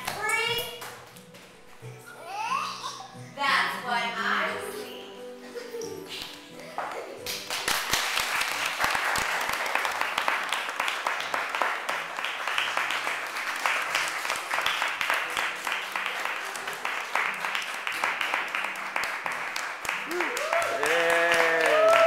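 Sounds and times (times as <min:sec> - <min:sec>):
audience applauding: 0:07.2 - 0:22.0.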